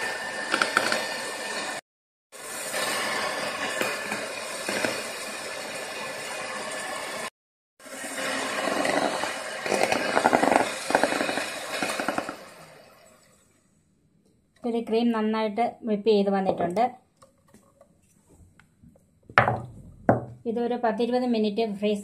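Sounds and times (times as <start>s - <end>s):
electric hand mixer whipping cream: 0.0s - 1.8s, 2.4s - 13.0s.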